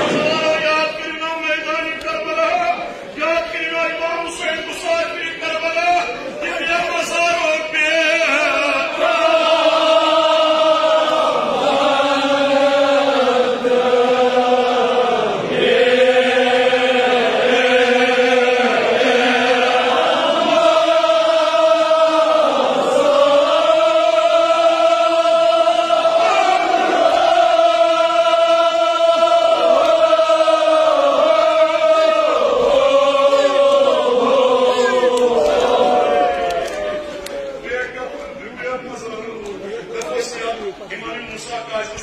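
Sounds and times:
man chanting through microphone: 0.0s - 9.0s.

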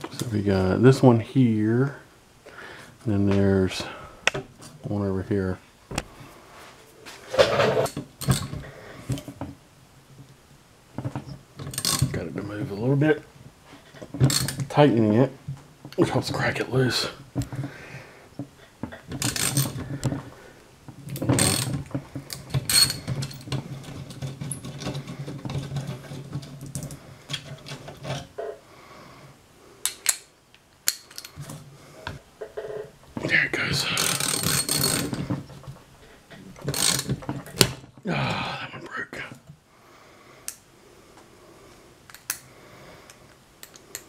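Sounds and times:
steel tools clinking: 22.4s - 23.5s, 34.0s - 35.2s.

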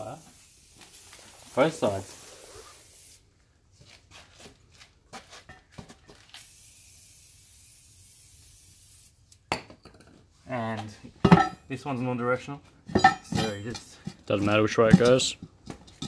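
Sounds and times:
aerosol spray can hissing: 0.0s - 3.2s, 6.4s - 9.2s.

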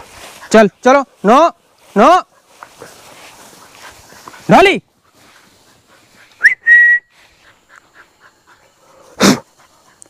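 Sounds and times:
person whistling: 6.4s - 7.2s.

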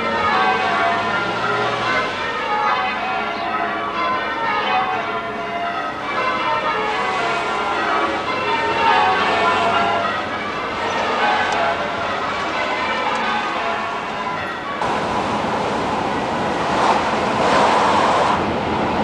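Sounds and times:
church bells ringing: 0.0s - 15.2s.

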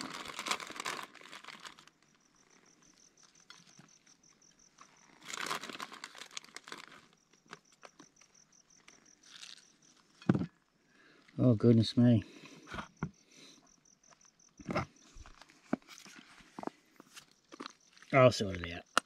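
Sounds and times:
plastic bag crinkling and rustling: 0.0s - 2.1s, 4.9s - 8.0s, 8.8s - 10.4s.

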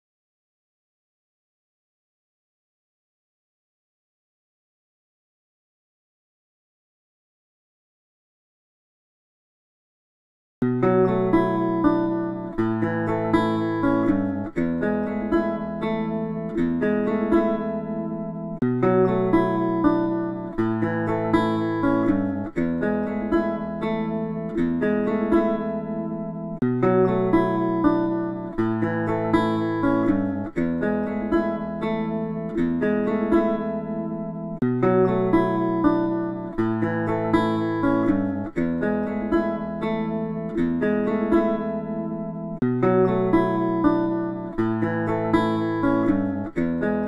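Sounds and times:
acoustic guitar chords: 10.6s - 47.0s
instrumental background music: 10.6s - 47.0s.

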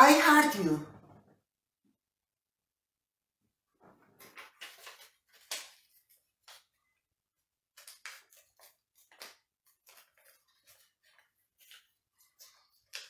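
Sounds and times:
paper being folded and creased: 3.8s - 13.0s.

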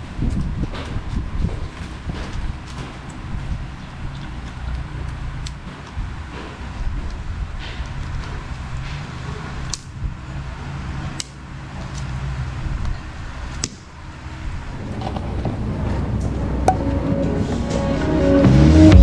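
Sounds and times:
low rumble: 14.3s - 19.0s.

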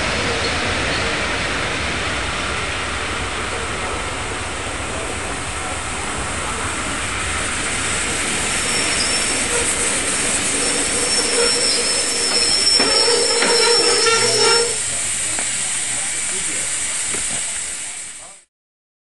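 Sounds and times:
steam hissing from train: 0.0s - 18.5s
thin high whistling tone: 8.2s - 18.2s.

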